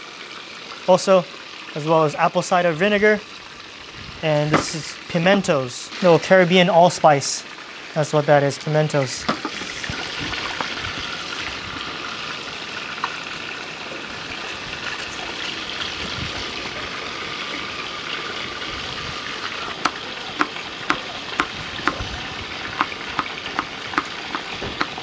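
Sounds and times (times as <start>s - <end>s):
fish sizzling in a pan: 9.3s - 18.3s.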